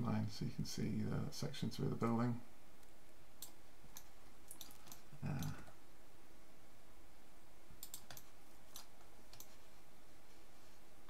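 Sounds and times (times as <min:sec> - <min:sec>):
mouse and keyboard clicks: 0:03.4 - 0:05.5, 0:07.8 - 0:09.6.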